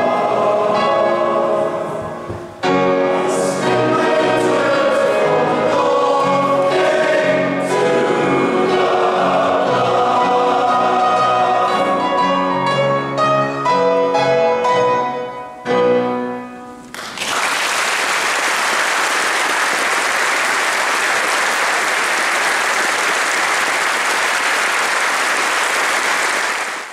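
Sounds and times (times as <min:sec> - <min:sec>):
boys' choir singing with piano: 0:00.0 - 0:15.0
audience applause: 0:16.9 - 0:26.9.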